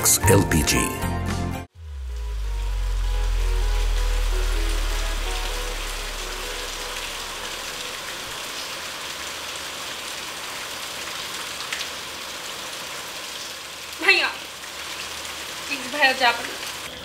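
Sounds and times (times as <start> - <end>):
music: 0.0 - 8.2
steady rain falling: 1.9 - 17.0.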